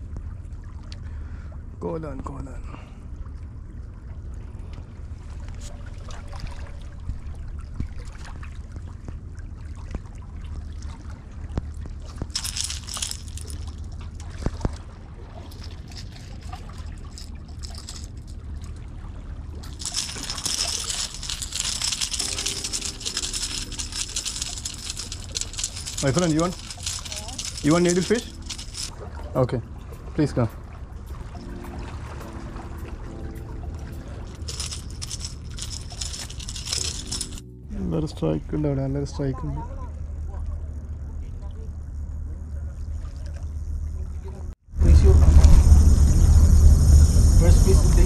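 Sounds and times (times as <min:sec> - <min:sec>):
water sloshing at shoreline: 0:03.1 - 0:24.0, 0:26.1 - 0:35.0
steady low rumble: 0:11.6 - 0:39.0, 0:39.8 - 0:48.0.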